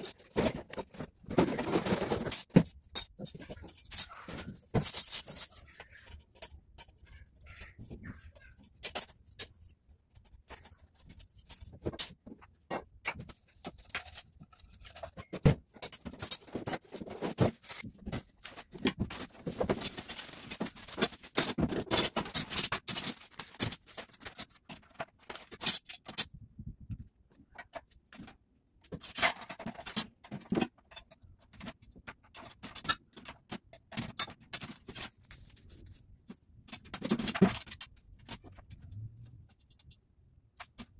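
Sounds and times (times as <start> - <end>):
metal cutlery clattering: 0.0 - 7.7, 13.0 - 26.3, 29.0 - 31.7
plastic packaging rustling: 16.0 - 25.6, 34.7 - 36.0.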